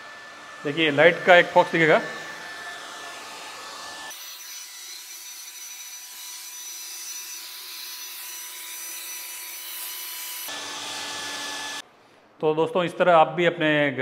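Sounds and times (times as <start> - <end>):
hair dryer blowing: 0.0 - 4.2.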